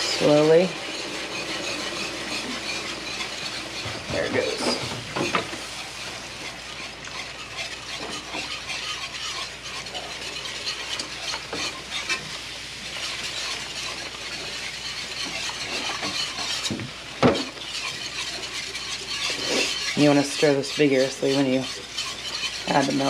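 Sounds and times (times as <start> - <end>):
pan sizzling: 0.0 - 23.0
whisk scraping in a skillet: 0.0 - 23.0.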